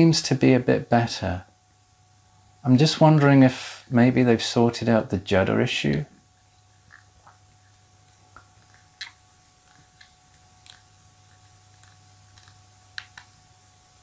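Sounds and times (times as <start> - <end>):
low electrical hum: 0.0 - 14.0
small clicks: 11.7 - 13.4.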